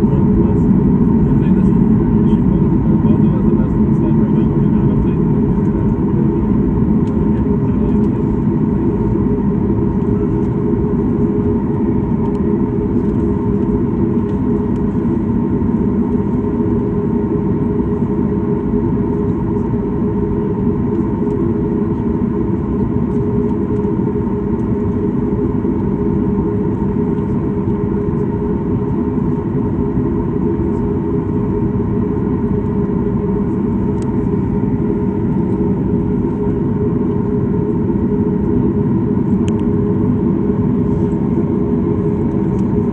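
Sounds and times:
aircraft cabin low rumble: 0.0s - 42.9s
mid-pitched engine hum: 0.0s - 42.9s.

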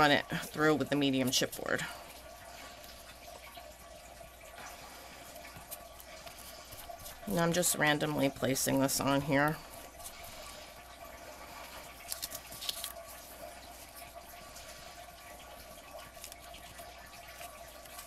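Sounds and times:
faint background hum: 0.0s - 18.0s
wet paper sticky crackles: 5.2s - 10.8s, 11.4s - 18.0s.

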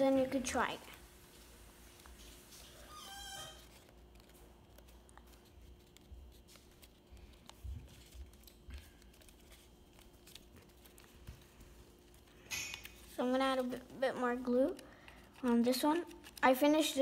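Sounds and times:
paper crinkling and clicking: 3.4s - 17.0s.

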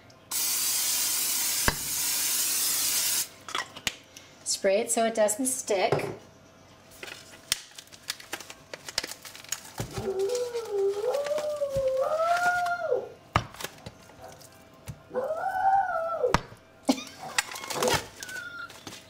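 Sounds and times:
dog howling: 9.8s - 13.2s, 15.1s - 16.5s.

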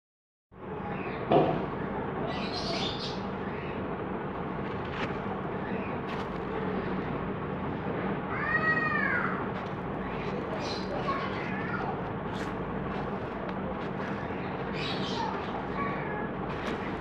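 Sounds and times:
cement lumps crunching by hand: 4.5s - 6.7s, 9.5s - 17.0s.

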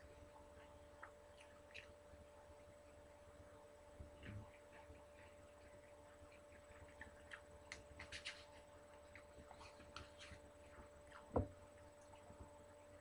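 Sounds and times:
faint hum: 0.0s - 13.0s
mouth clicks of chewing: 1.0s - 2.0s.

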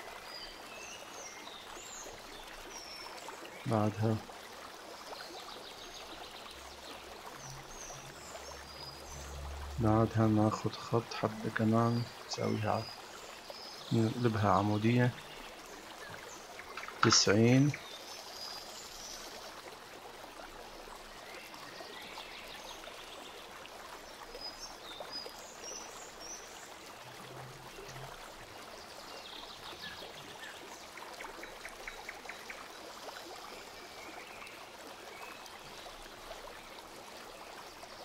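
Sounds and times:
background noise hiss: 6.6s - 38.0s.

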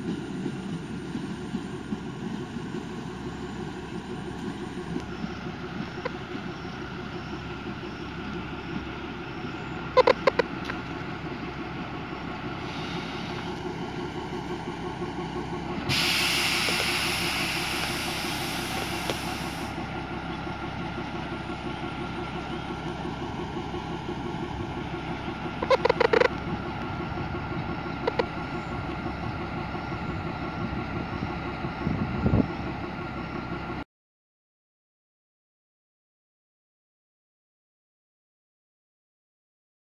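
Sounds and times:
diesel train rumbling past: 0.0s - 33.8s
air hiss: 12.6s - 13.6s, 15.9s - 19.8s.

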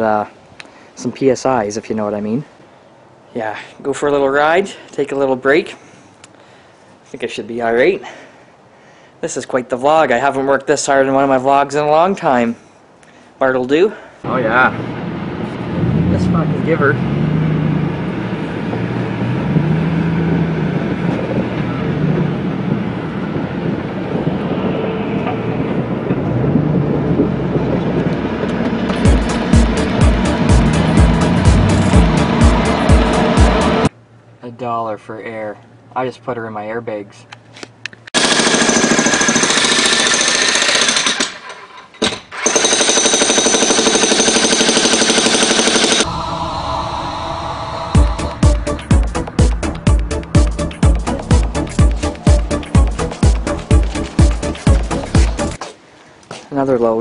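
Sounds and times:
truck engine: 14.6s - 33.9s, 45.4s - 55.6s
jackhammer pounding concrete: 38.2s - 46.1s.

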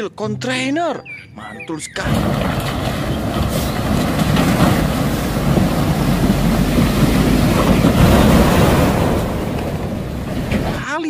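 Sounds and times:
truck engine rumbling: 0.0s - 11.0s
churning mud and water: 1.5s - 11.0s.

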